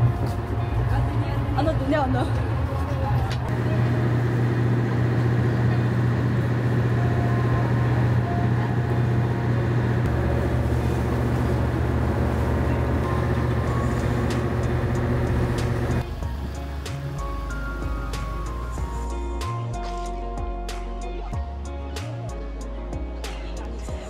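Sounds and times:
boat engine droning: 2.6 - 18.7.

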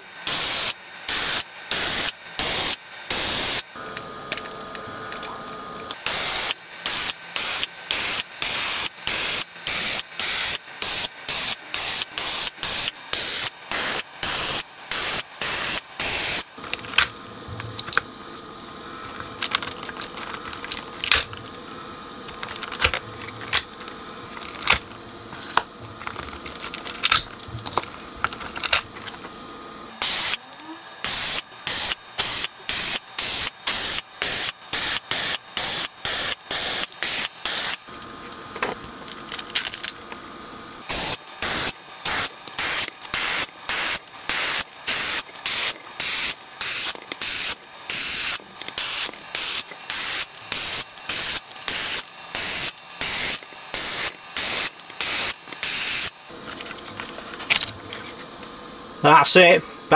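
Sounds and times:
desoldering gun suction bursts: 0.2 - 3.8, 5.9 - 16.6, 29.9 - 37.9, 40.8 - 56.3.

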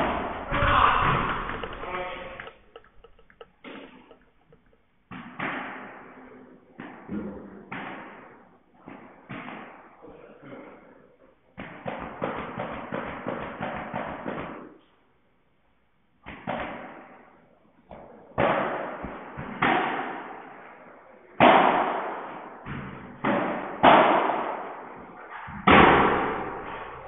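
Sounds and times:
padel ball hits echoing: 0.0 - 6.2.

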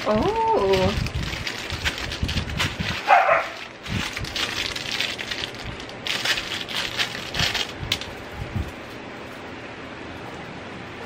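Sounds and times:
plastic bag crinkling: 0.0 - 9.4.

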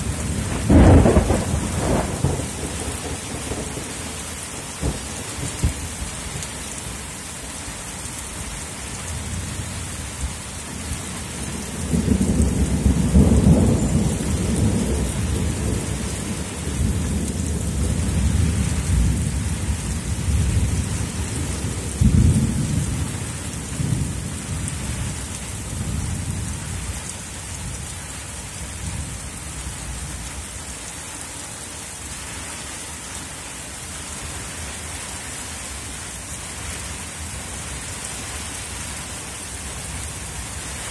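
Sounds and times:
thunder rumbling: 0.0 - 4.2, 4.8 - 6.1, 11.5 - 26.8
heavy rain falling: 0.0 - 40.9
sharp thunder clap: 0.4 - 3.7.

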